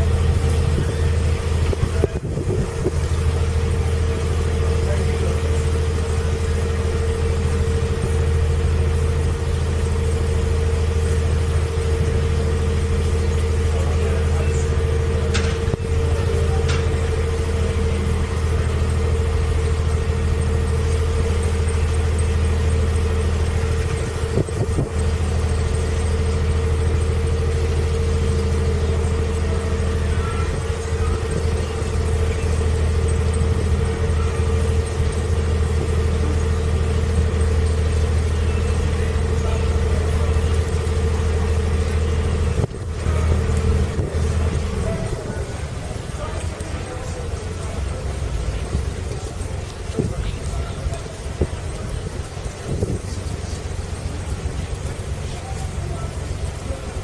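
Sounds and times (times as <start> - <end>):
boat engine running at low revs: 0.0 - 57.0.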